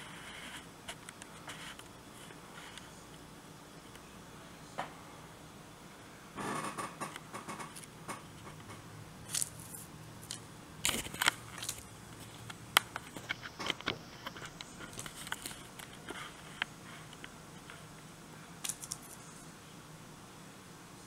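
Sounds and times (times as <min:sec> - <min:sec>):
paper receipt rustling and crinkling: 0:09.3 - 0:17.2, 0:18.6 - 0:19.4.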